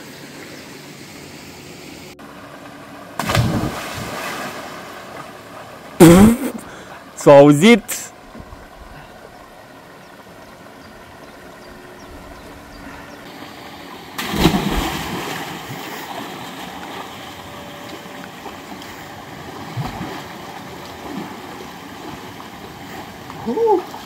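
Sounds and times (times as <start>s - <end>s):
waterfall and stream running: 3.1s - 24.0s
person splashing into pool: 3.2s - 4.9s, 14.2s - 17.0s.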